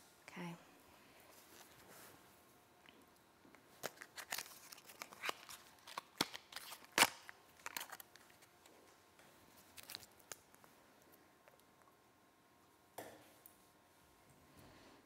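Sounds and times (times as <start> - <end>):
clicks of handling small items: 3.8 - 8.5.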